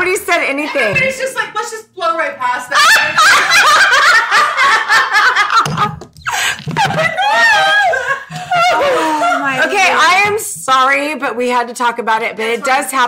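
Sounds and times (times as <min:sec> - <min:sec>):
women laughing: 0:02.7 - 0:10.0.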